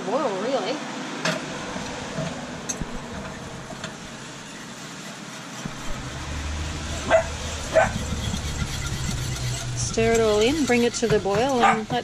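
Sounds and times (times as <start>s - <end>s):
utensil stirring sauce in saucepan: 5.6s - 12.0s.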